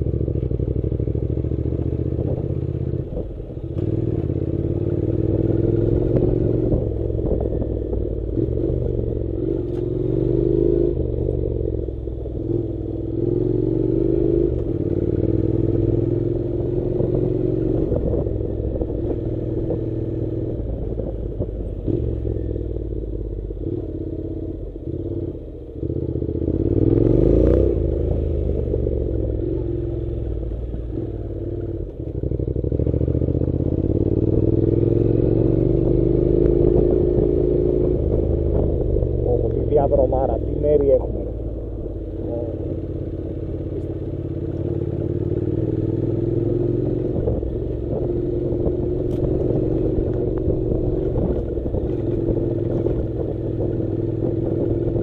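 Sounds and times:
motorcycle engine under load: 27.7 - 55.0.

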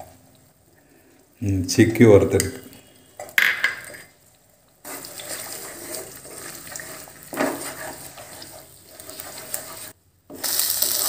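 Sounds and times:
eggs sizzling in oil: 0.0 - 11.0
wooden spatula scraping pan: 4.8 - 10.0.

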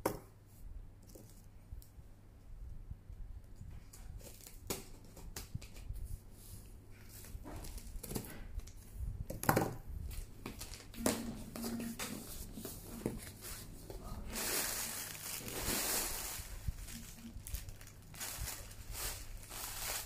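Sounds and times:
plastic packaging crinkling: 10.1 - 12.2, 12.9 - 20.0.

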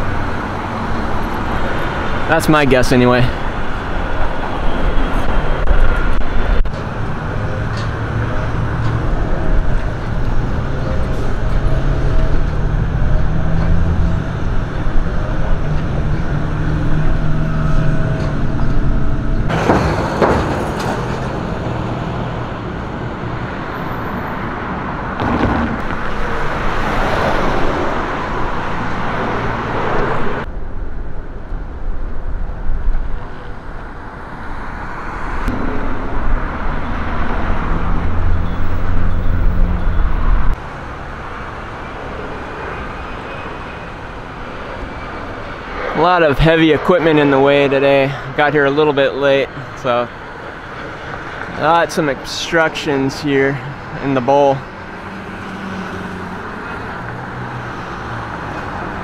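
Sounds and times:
cars passing with whoosh: 0.0 - 59.0
low traffic rumble: 0.0 - 59.0.

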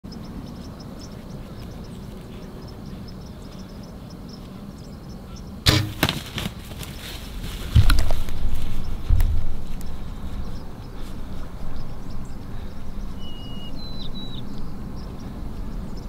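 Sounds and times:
bow shot sharp crack: 5.6 - 6.5
loud low thuds of deer running: 5.6 - 10.4.

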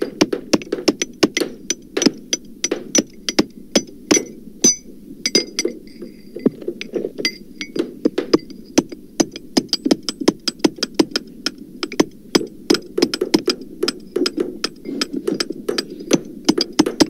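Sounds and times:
hammers striking: 0.0 - 6.6, 7.2 - 17.0.

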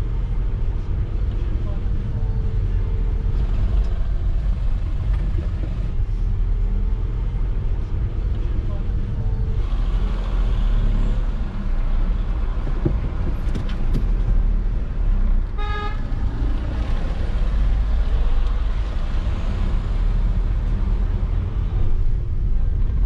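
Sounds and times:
road and engine rumble in car: 0.0 - 23.0
car horn toot: 15.6 - 16.0.

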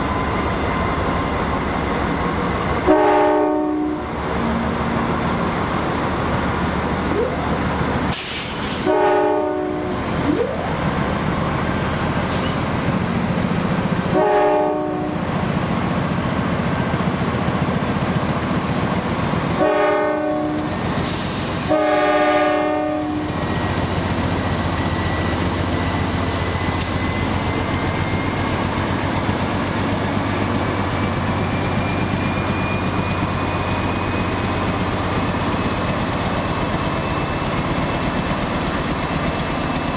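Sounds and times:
diesel locomotives rumbling: 0.0 - 39.9
locomotive air horn blasts: 2.8 - 4.0, 8.7 - 10.0, 14.1 - 15.2, 19.6 - 20.8, 21.4 - 23.4.

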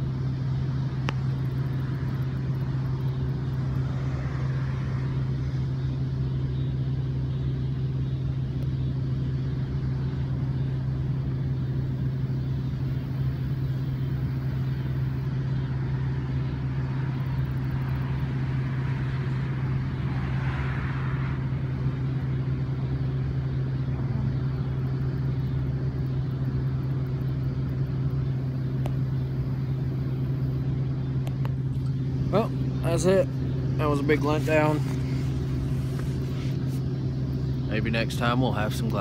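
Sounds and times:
motor humming: 21.4 - 39.0.

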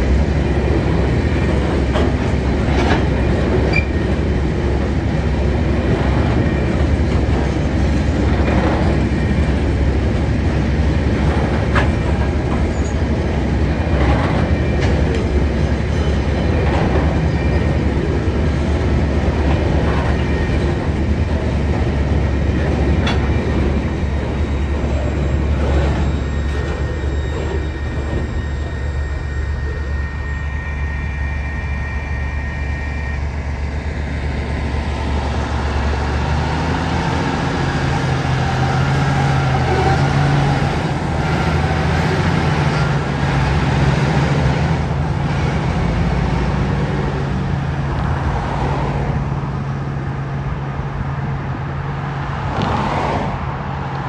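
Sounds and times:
freight train rumbling past: 0.0 - 54.0
road vehicle engine: 0.0 - 54.0
wheels clanking over rail joints: 0.3 - 29.8
train wheel squeal: 1.2 - 4.6, 11.2 - 21.7, 22.4 - 35.2, 35.8 - 47.3.

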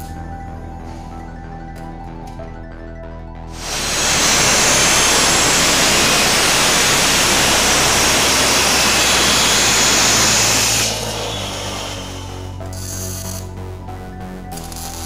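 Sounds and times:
angle grinder cutting steel: 3.6 - 13.3.

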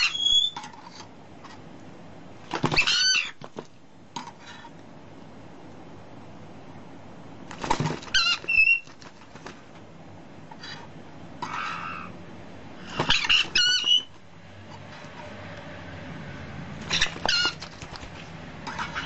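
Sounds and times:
parrot squawking: 0.0 - 0.6, 2.7 - 3.4, 8.1 - 8.9, 11.4 - 12.2, 12.8 - 14.2, 16.8 - 17.8.

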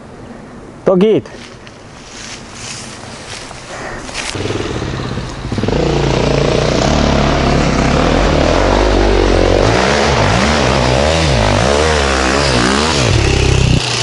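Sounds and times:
motorcycle engine revving: 4.2 - 14.0.

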